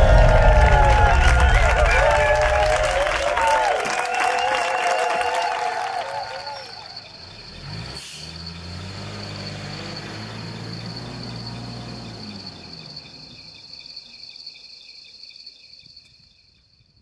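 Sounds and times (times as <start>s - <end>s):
truck engine running low: 0.0s - 3.3s, 6.4s - 13.8s
crickets chirping: 0.0s - 17.0s.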